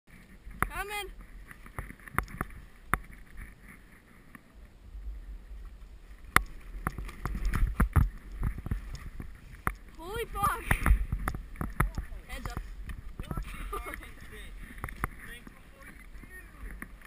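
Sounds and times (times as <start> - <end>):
low rumble: 4.5 - 16.8.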